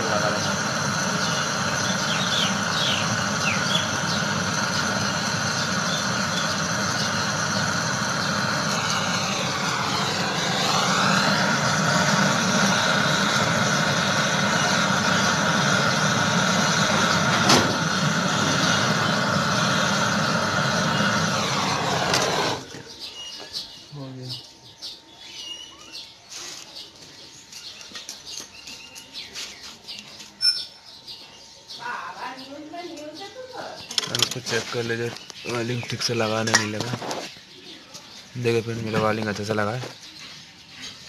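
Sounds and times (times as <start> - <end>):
blowtorch hissing: 0.0 - 23.0, 33.9 - 37.4.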